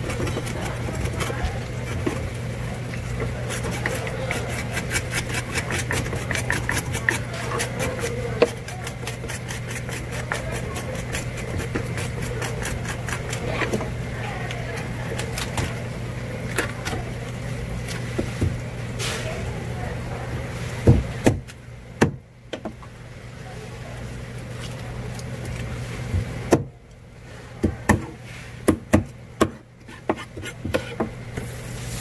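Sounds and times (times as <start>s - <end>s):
knife cutting fish on board: 3.2s - 13.9s, 27.6s - 31.1s.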